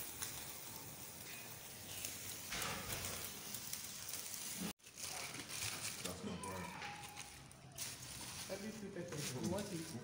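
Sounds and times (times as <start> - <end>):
crackles and pops: 0.0 - 6.2
meat sizzling on a grill: 0.0 - 10.0.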